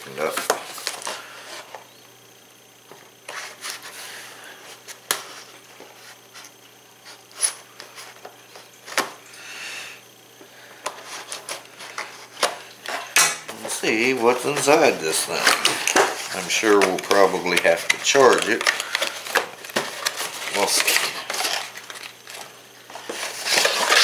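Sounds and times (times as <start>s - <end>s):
shears cutting cardboard: 10.8s - 24.0s
cardboard scraping and rustling: 10.9s - 24.0s.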